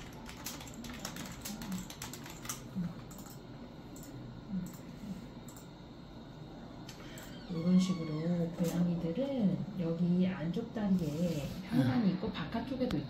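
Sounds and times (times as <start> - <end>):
keyboard typing: 0.0 - 3.4.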